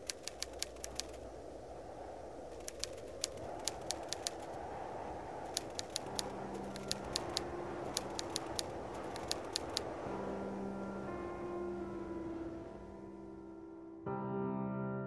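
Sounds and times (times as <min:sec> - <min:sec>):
low steady noise: 0:00.0 - 0:14.3
soft sustained music notes: 0:06.1 - 0:15.0.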